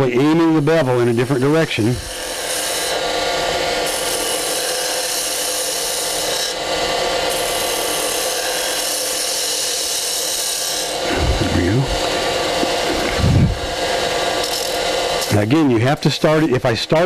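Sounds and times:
wood lathe running: 0.0s - 17.0s
gouge shaving wood: 1.3s - 15.4s.

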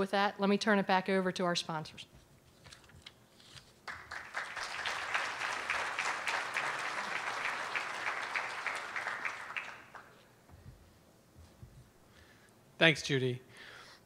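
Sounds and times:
audience applauding: 3.8s - 10.2s.

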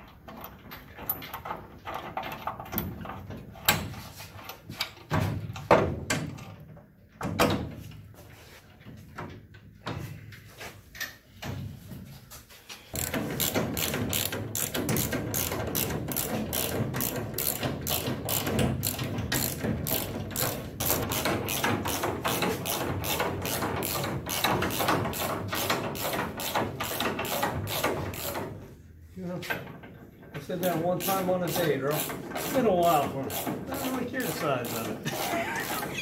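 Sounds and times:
socket ratchet clicking: 13.0s - 25.0s.

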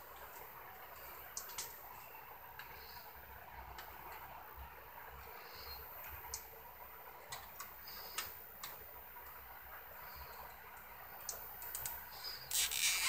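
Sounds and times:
cable tie and wires clicking: 11.3s - 13.0s.

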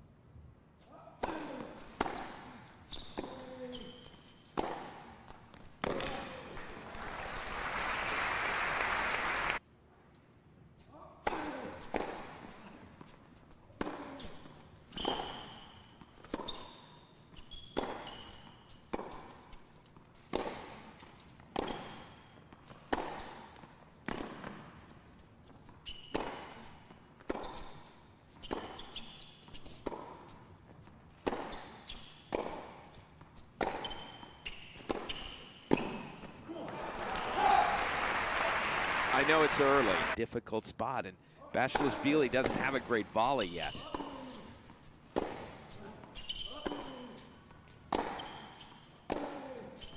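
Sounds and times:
short high shoe squeaks: 0.8s - 6.4s, 12.5s - 19.7s, 20.4s - 23.5s, 24.8s - 30.1s, 31.3s - 36.4s, 42.0s - 49.9s
tennis ball hit by rackets: 1.2s - 2.4s, 4.4s - 6.6s, 11.2s - 12.6s, 13.7s - 14.3s, 17.7s - 19.6s, 20.2s - 24.8s, 26.1s - 27.7s, 31.2s - 32.9s, 33.6s - 36.3s, 41.7s - 42.9s, 43.8s - 49.9s.

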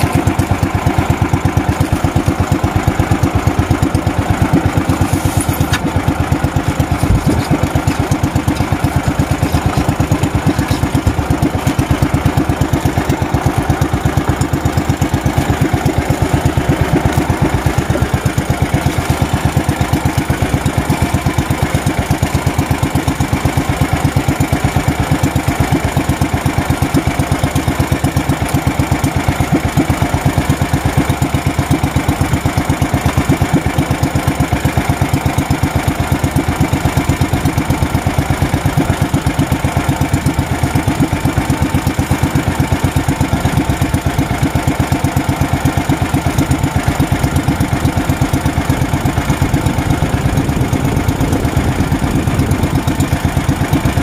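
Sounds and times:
small boat engine thudding: 0.0s - 54.0s.

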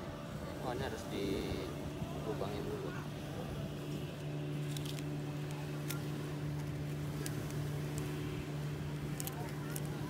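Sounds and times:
steady low hum: 0.0s - 10.0s
fishing tackle clicks: 4.6s - 8.1s, 9.0s - 10.0s.

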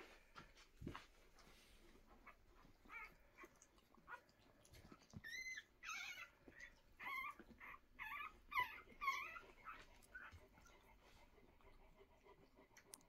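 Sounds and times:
puppies squeaking and whimpering: 2.1s - 11.0s.

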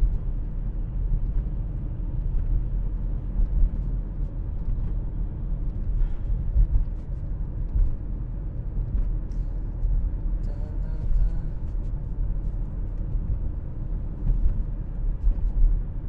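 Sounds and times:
car cabin road rumble: 0.0s - 16.0s.

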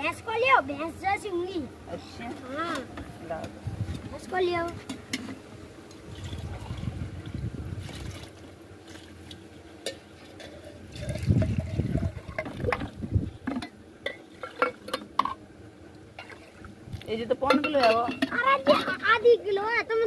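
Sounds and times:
milk sloshing and pouring: 6.1s - 7.0s, 7.8s - 9.4s, 10.2s - 13.0s
metal cups clinking: 9.9s - 15.4s, 17.4s - 19.0s.

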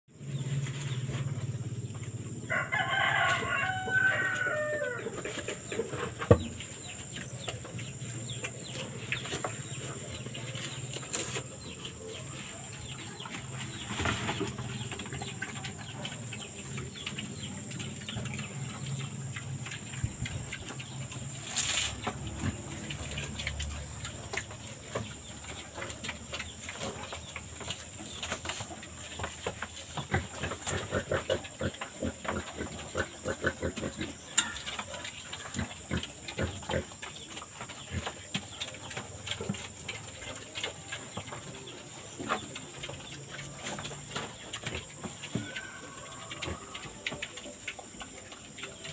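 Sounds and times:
rooster crowing: 2.4s - 5.1s, 45.4s - 46.9s.

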